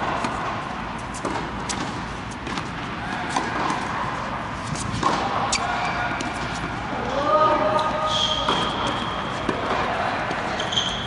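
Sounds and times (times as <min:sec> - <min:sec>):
balls bouncing on hard court: 0:00.0 - 0:04.0, 0:04.7 - 0:06.8, 0:07.8 - 0:11.0
tennis balls struck by rackets: 0:00.0 - 0:04.0, 0:04.6 - 0:06.8, 0:08.4 - 0:10.6
steady indoor background noise: 0:00.0 - 0:11.0.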